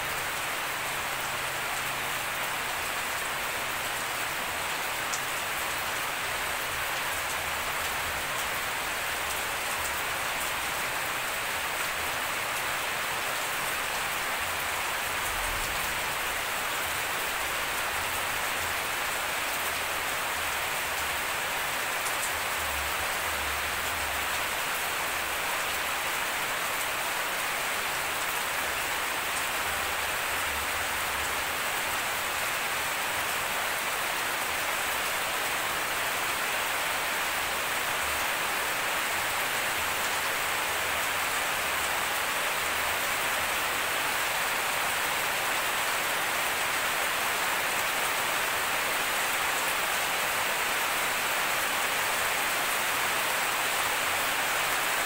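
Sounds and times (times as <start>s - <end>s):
steady rain hiss: 0.0s - 55.0s.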